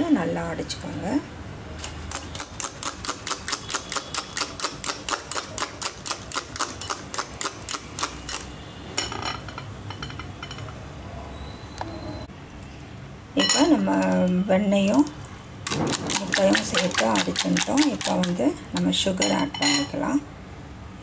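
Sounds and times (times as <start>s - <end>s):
whisk clicking in a bowl: 15.7s - 18.9s.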